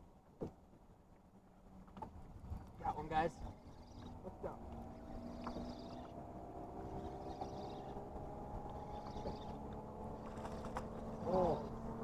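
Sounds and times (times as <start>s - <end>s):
water: 0.0s - 6.2s
boat motor humming: 0.1s - 12.0s.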